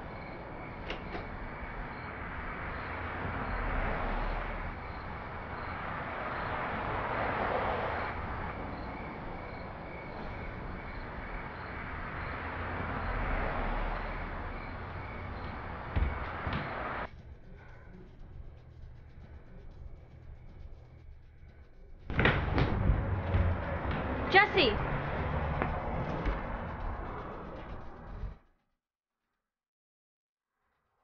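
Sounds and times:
steady rushing noise: 0:01.5 - 0:28.4
knock: 0:15.9 - 0:16.8.

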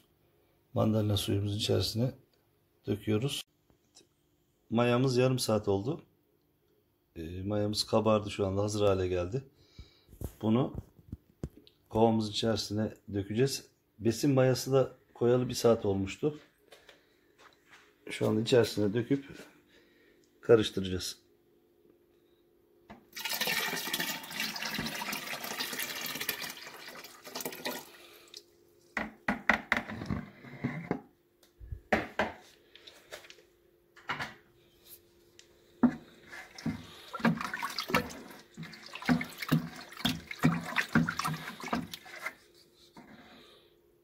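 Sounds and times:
liquid pouring and splashing: 0:23.1 - 0:28.5, 0:36.2 - 0:42.5
paddle stirring liquid sloshing: 0:35.8 - 0:43.4.

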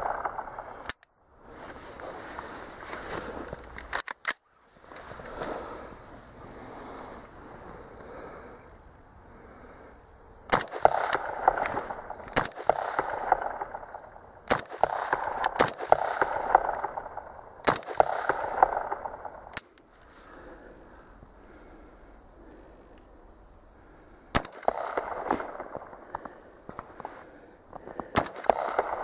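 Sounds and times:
rifle shots with echo: 0:00.0 - 0:01.0, 0:10.5 - 0:19.7, 0:24.3 - 0:26.4, 0:27.9 - 0:29.0.

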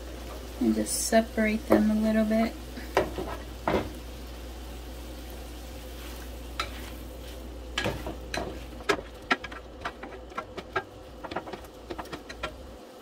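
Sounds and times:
chicken sizzling in a pan: 0:00.0 - 0:13.0
spatula scraping and tapping: 0:06.6 - 0:07.0, 0:07.8 - 0:12.7.

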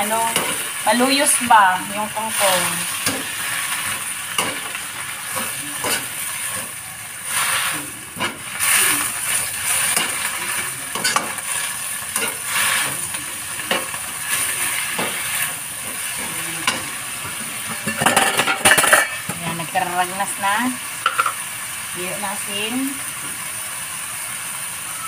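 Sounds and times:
vegetables sizzling in a pan: 0:00.0 - 0:25.0
spatula scraping a pan: 0:02.3 - 0:13.1.

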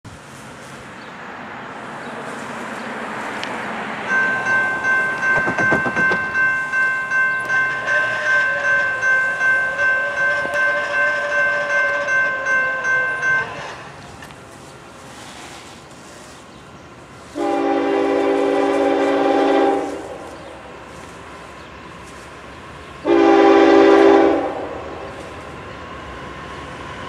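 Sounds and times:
railroad crossing bell ringing: 0:04.0 - 0:14.6.

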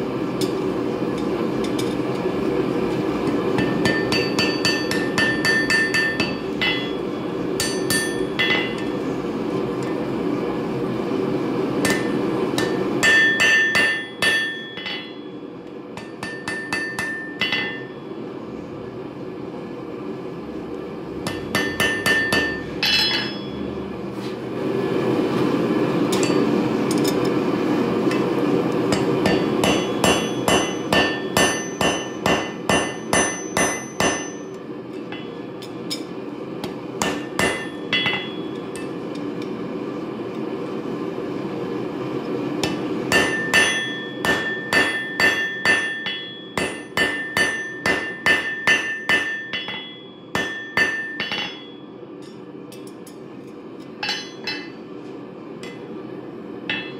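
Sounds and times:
anvil ringing: 0:03.6 - 0:08.9, 0:11.9 - 0:15.4, 0:16.0 - 0:18.1, 0:21.3 - 0:23.7, 0:28.9 - 0:36.0, 0:37.0 - 0:38.9, 0:43.1 - 0:52.4, 0:54.0 - 0:54.8
hammer striking spike on anvil: 0:03.6 - 0:08.9, 0:11.8 - 0:15.3, 0:16.0 - 0:18.0, 0:21.2 - 0:23.6, 0:28.9 - 0:39.0, 0:42.6 - 0:53.2, 0:54.0 - 0:54.8, 0:56.7 - 0:56.9.

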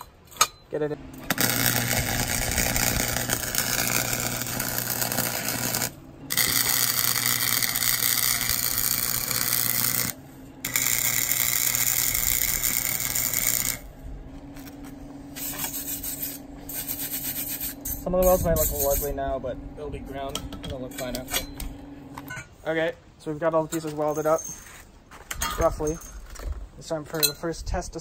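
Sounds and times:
steady low hum: 0:00.0 - 0:28.0
welding arc crackling: 0:01.2 - 0:19.2.

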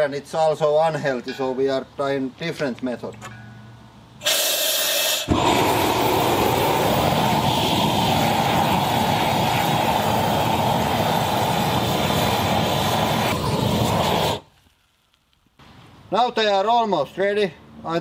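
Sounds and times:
gas torch flame rushing: 0:04.2 - 0:14.6.

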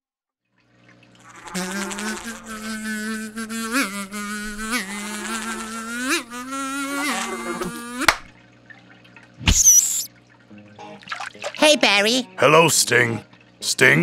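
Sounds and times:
flying insect buzzing: 0:01.2 - 0:08.3, 0:09.5 - 0:10.1.

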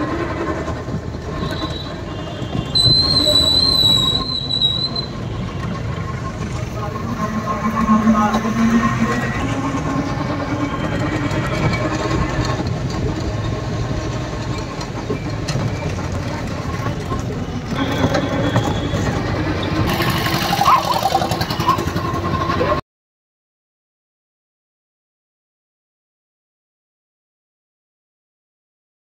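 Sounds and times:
street noise: 0:00.0 - 0:22.8
vehicle engines running: 0:00.0 - 0:22.8.

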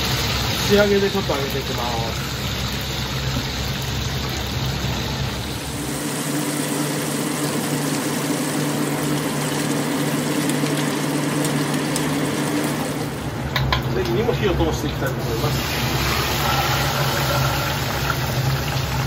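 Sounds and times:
oil sizzling deep-frying: 0:00.0 - 0:19.0.

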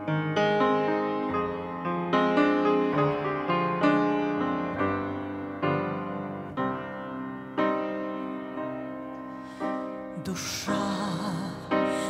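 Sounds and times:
grand piano chords: 0:00.0 - 0:12.0.

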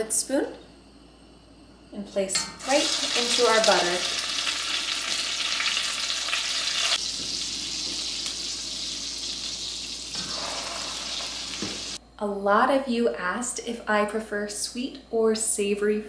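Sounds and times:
food sizzling in a pan: 0:02.3 - 0:12.0
water boiling: 0:02.4 - 0:12.0.

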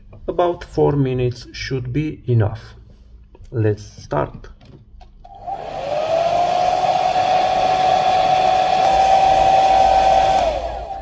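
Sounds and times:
hairdryer motor whine and air: 0:05.3 - 0:11.0
hairdryer switch click: 0:07.2 - 0:11.0.

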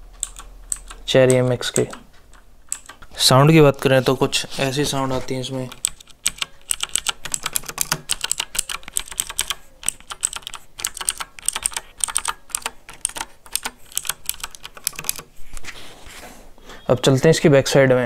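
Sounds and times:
mechanical keyboard key clicks: 0:00.2 - 0:03.1, 0:05.7 - 0:15.3.

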